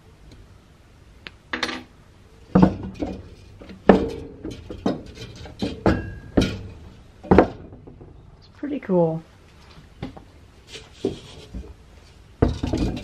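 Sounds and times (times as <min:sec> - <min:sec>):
metal housing knocking on wood: 0:02.5 - 0:08.1, 0:12.4 - 0:13.0.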